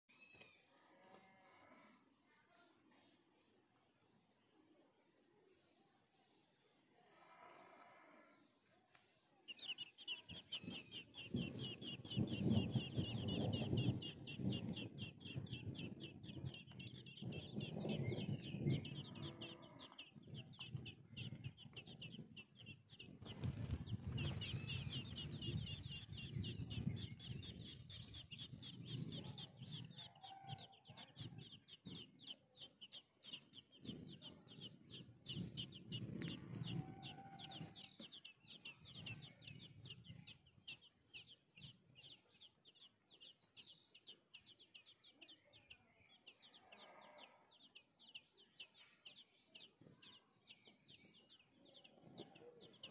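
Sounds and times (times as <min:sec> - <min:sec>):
nestlings cheeping: 0:09.5 - 0:41.8.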